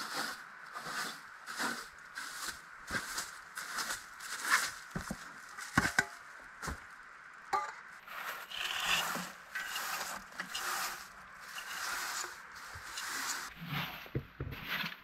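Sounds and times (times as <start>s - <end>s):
broom bristles swishing on planks: 8.1s - 15.0s.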